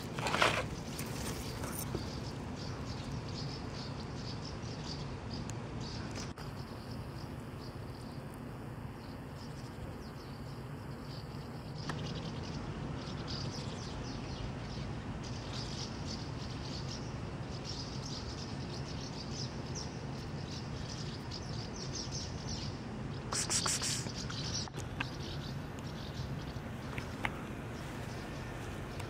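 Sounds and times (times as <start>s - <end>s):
low outdoor rumble: 0.0s - 23.4s, 24.0s - 29.0s
small birds chirping: 0.0s - 29.0s.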